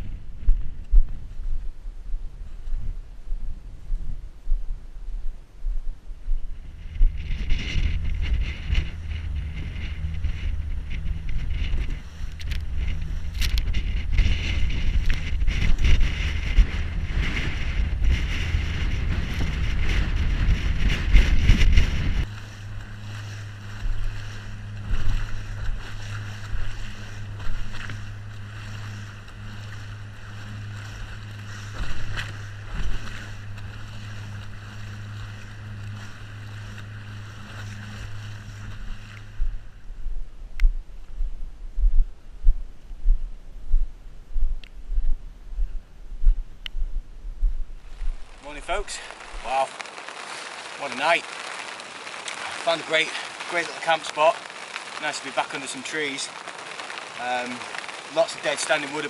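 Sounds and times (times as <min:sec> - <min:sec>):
wind noise on microphone: 0:00.0 - 0:59.0
outboard motor running: 0:06.7 - 0:39.8
rushing water: 0:07.1 - 0:39.7, 0:47.9 - 0:59.0.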